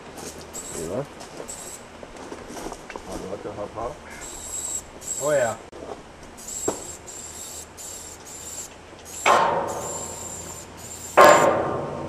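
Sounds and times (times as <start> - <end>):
spray paint can hissing: 0.5 - 1.8, 4.2 - 5.5, 6.4 - 11.5
loud metal clanks: 9.2 - 10.2, 11.1 - 12.0.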